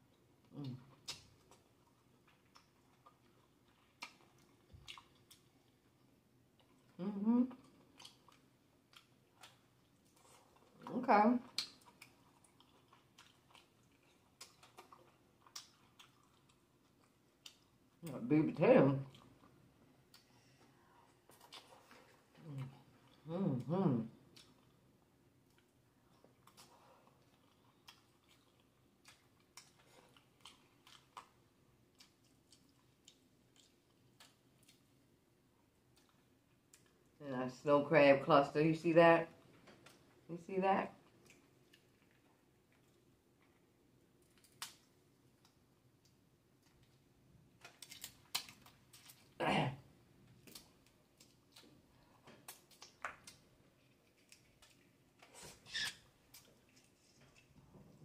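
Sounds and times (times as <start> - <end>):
quiet chewing: 0.0 - 18.1, 19.0 - 37.2, 39.4 - 40.3, 41.0 - 49.4, 50.2 - 58.0
crab shell cracking: 44.2 - 46.2, 47.6 - 49.2.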